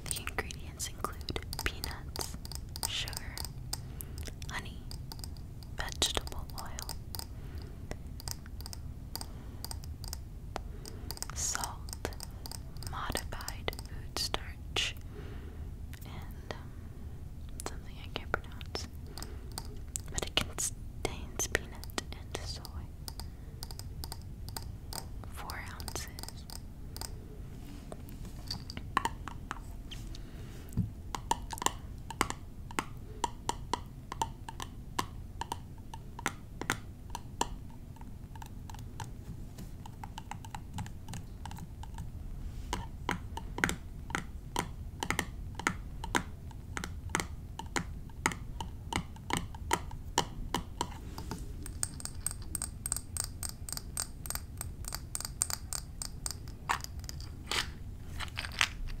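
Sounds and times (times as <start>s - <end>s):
tapping on small glass bottles: 28.4s - 29.5s, 42.7s - 57.6s.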